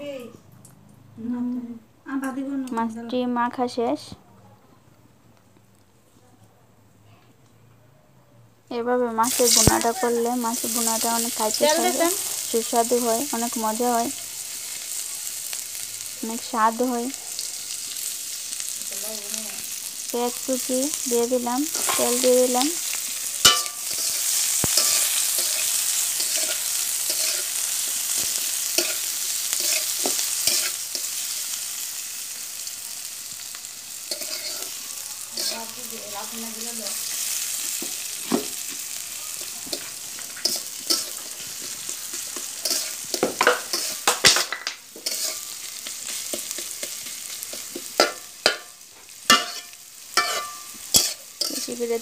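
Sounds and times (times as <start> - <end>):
onions sizzling in hot oil: 8.9 - 52.0
metal spatula scraping pan: 21.7 - 31.4, 34.1 - 35.8, 39.4 - 48.7, 49.3 - 52.0.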